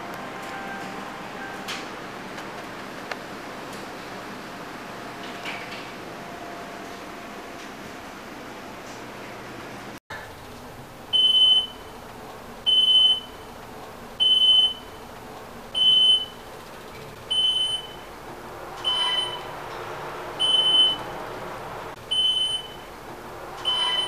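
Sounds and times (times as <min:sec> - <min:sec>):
elevator electronic beep: 0:00.0 - 0:02.0, 0:11.1 - 0:11.9, 0:12.7 - 0:13.5, 0:14.2 - 0:15.0, 0:15.8 - 0:16.4, 0:17.3 - 0:18.1, 0:18.8 - 0:19.6, 0:20.4 - 0:21.1, 0:22.1 - 0:22.9, 0:23.6 - 0:24.0.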